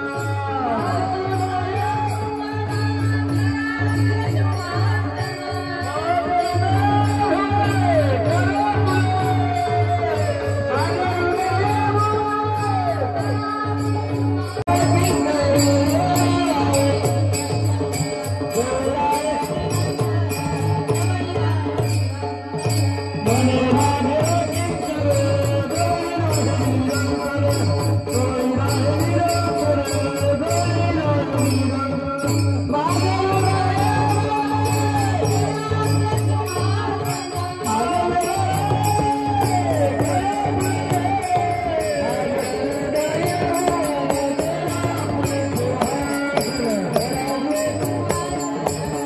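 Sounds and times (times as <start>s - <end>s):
hand cymbals jingling: 0.0s - 49.0s
steady drum beat: 0.0s - 49.0s.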